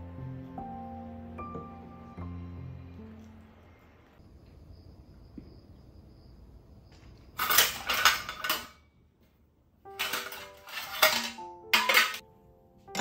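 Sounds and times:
dishes clattering on metal rack: 7.4 - 8.8, 9.9 - 12.2.

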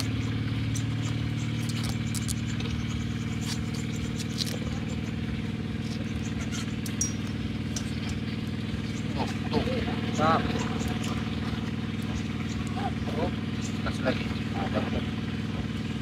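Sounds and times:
leaves crackling being folded: 0.0 - 6.1
engine idling: 0.0 - 16.0.

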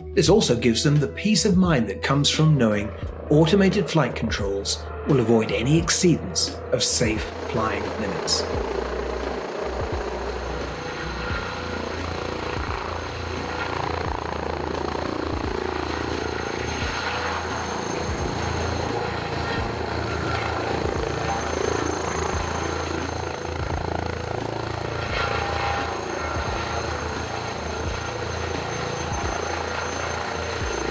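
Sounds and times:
high turbine whine: 2.5 - 30.9
helicopter rotor thrum: 7.1 - 30.9.

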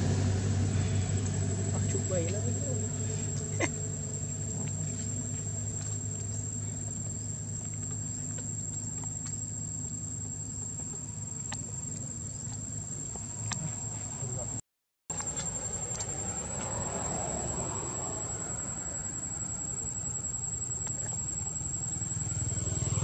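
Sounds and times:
low steady hum: 0.0 - 14.6
insects droning: 0.0 - 23.0.

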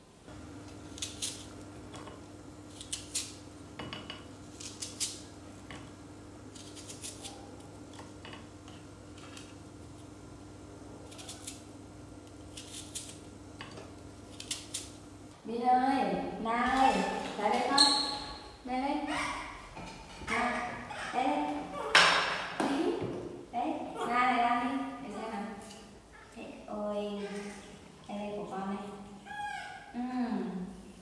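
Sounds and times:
steady low hum: 0.0 - 17.4
knife slicing crisp fruit: 0.7 - 1.6, 2.7 - 3.4, 4.5 - 5.3, 6.5 - 8.1, 11.0 - 13.2, 14.3 - 15.0.

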